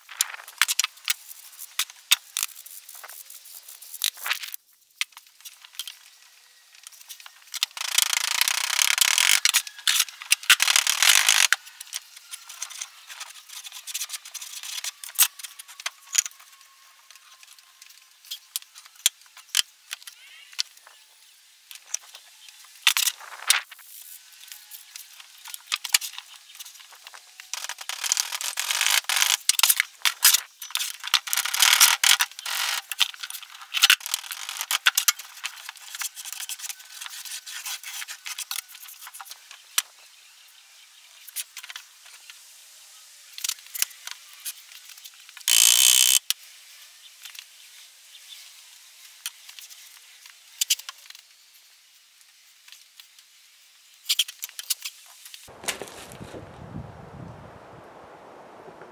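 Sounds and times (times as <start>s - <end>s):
sand scraping and rustling: 55.0s - 58.9s.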